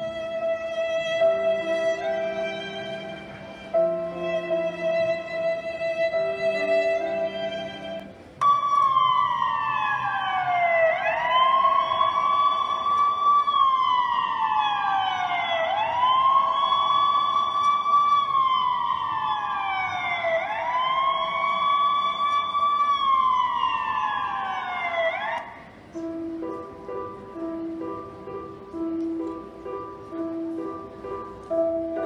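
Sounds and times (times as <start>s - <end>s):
emergency siren wailing: 7.6s - 29.4s.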